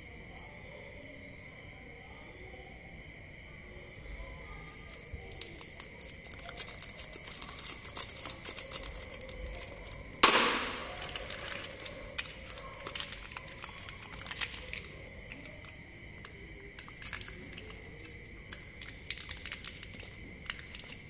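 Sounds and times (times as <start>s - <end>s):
plastic wrappers crinkling: 4.6s - 21.0s.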